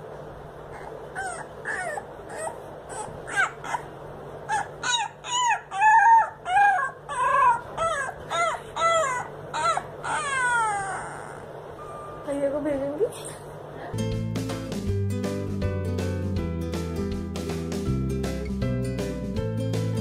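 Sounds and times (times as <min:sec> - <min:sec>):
puppy howling and yipping: 0:00.7 - 0:11.6.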